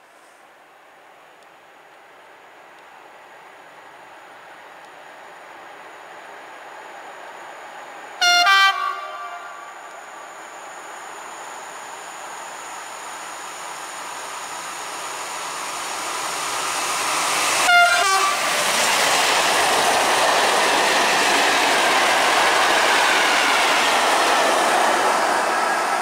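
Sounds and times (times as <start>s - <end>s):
freight train rumble: 2.5s - 26.0s
train horn blast: 8.2s - 9.8s, 17.7s - 18.5s.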